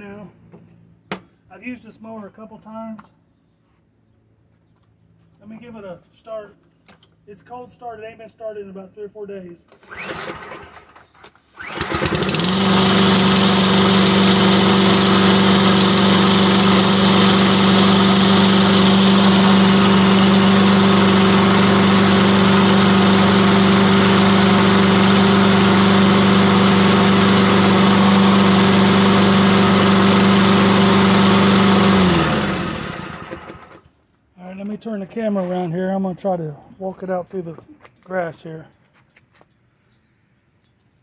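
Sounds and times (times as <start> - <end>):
lawn mower engine running: 9.8 - 33.9.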